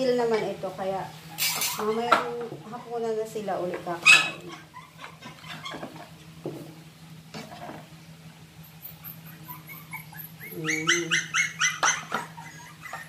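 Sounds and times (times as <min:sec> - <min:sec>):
dogs whimpering and yipping: 0:01.3 - 0:03.1, 0:04.0 - 0:06.2, 0:08.6 - 0:13.0.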